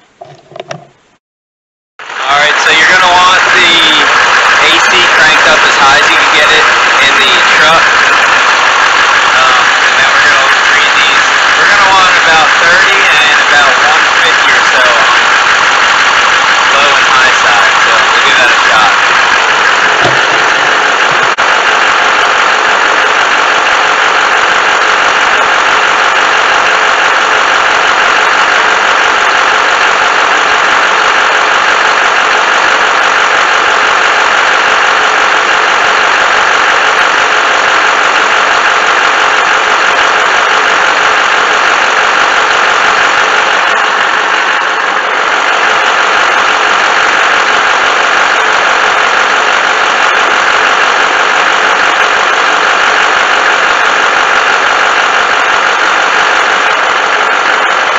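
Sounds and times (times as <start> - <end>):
diesel engine idling: 2.1 - 57.9
air conditioning running: 3.9 - 33.8.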